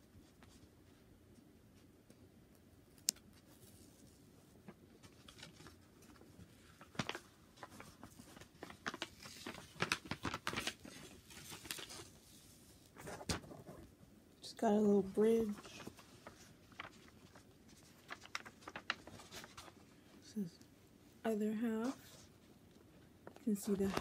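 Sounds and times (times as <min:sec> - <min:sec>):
plastic film crinkling: 0:05.0 - 0:12.6, 0:15.2 - 0:19.9, 0:23.2 - 0:24.0.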